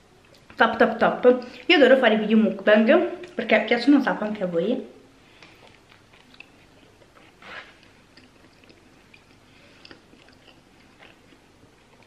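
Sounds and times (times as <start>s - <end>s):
close-mouthed chewing: 5.3s - 12.0s
wet mouth clicks: 5.4s - 11.4s.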